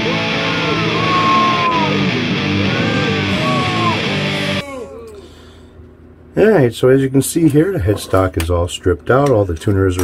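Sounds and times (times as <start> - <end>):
electric guitar with bent notes: 0.0 - 4.7.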